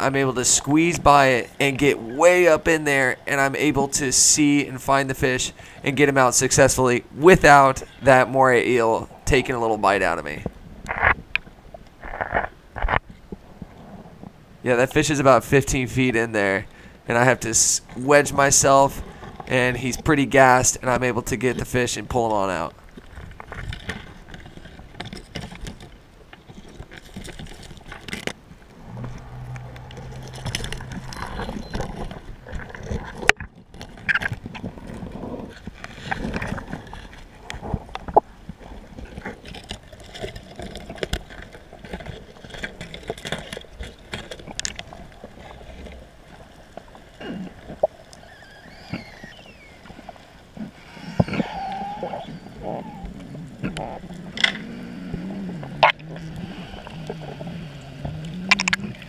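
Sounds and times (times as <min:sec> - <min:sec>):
steady low hum: 0:28.3 - 0:33.3.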